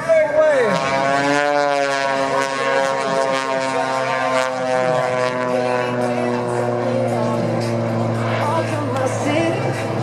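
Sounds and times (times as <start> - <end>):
propeller plane engine droning: 0.0 - 10.0.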